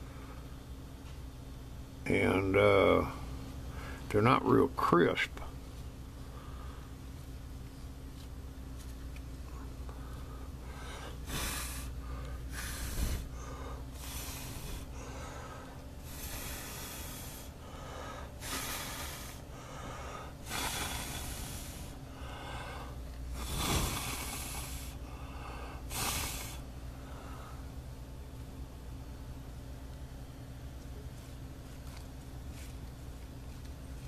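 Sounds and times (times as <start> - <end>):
steady low hum: 0.0 - 34.0
person blowing puffs of air: 10.7 - 26.7.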